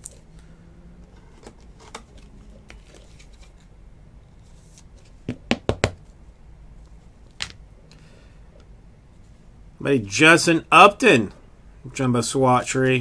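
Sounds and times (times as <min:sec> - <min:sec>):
cards being handled: 0:01.1 - 0:03.7.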